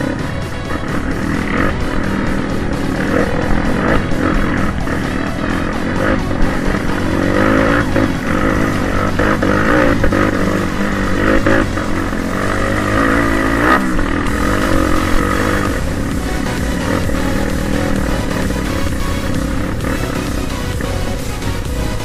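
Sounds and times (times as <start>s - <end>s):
motorcycle engine revving: 0.0s - 22.0s
motorcycle knocks and rattles: 0.0s - 22.0s.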